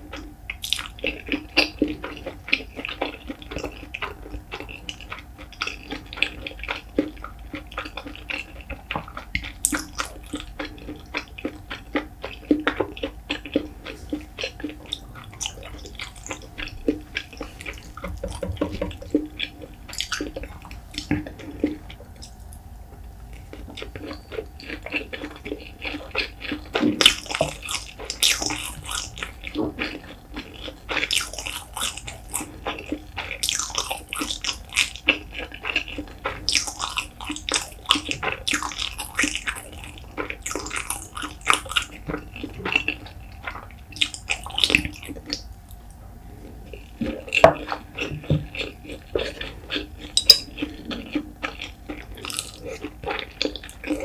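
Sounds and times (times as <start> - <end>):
wet chewing: 0.0 - 54.0
chopsticks clicking on dish: 50.2 - 50.6.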